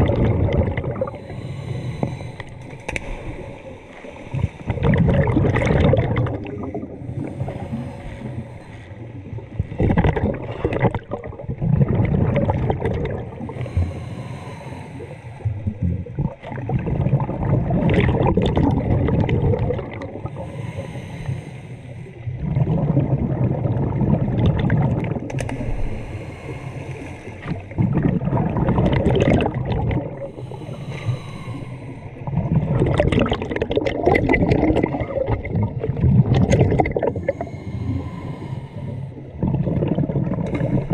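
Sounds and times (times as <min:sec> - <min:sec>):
exhaled bubbles rushing: 0:00.0 - 0:01.3, 0:04.3 - 0:08.4, 0:09.0 - 0:13.6, 0:15.5 - 0:20.4, 0:22.3 - 0:26.1, 0:27.4 - 0:30.5, 0:32.2 - 0:38.1, 0:39.2 - 0:40.9
regulator inhale hiss: 0:01.1 - 0:04.8, 0:07.0 - 0:09.1, 0:13.4 - 0:15.6, 0:20.2 - 0:22.3, 0:25.4 - 0:27.7, 0:30.2 - 0:32.3, 0:37.1 - 0:39.3.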